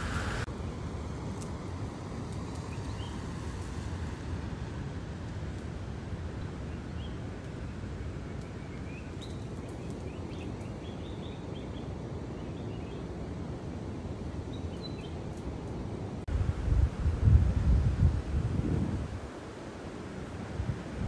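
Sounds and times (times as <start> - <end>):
low outdoor rumble: 15.2 - 21.0.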